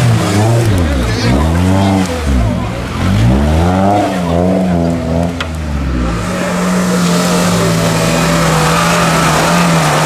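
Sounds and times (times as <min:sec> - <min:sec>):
off-road vehicle engine revving: 0:00.0 - 0:10.0.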